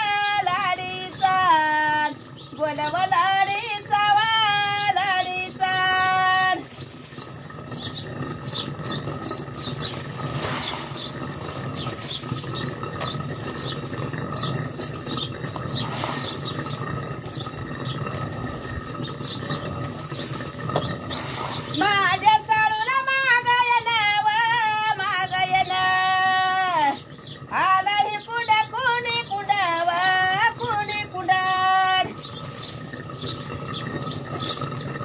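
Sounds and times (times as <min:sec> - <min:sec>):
stone grinding on stone: 0:06.9 - 0:21.9.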